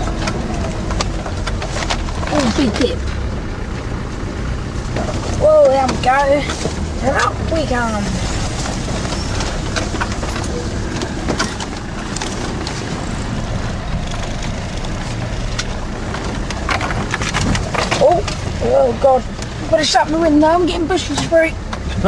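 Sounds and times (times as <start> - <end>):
diesel engine running: 0.0 - 22.0
vehicle clicks and knocks: 0.0 - 22.0
bushes brushing vehicle side: 4.8 - 21.5.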